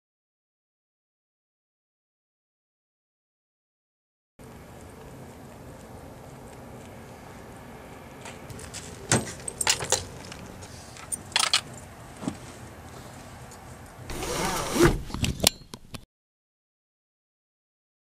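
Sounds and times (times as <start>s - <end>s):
keys jangling: 9.2s - 10.4s, 11.0s - 11.9s.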